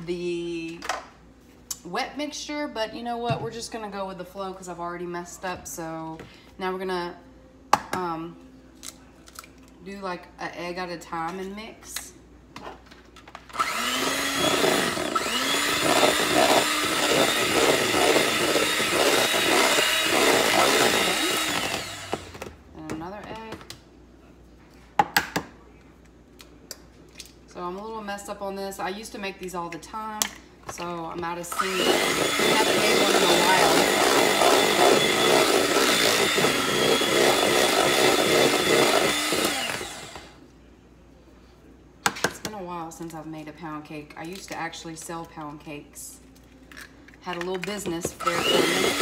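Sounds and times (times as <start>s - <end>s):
electric hand mixer whining: 13.6s - 22.4s, 31.5s - 40.4s, 48.2s - 49.0s.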